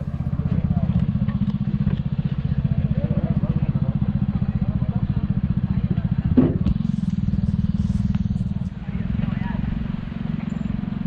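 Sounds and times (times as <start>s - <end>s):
clattering thump: 6.4s - 6.8s.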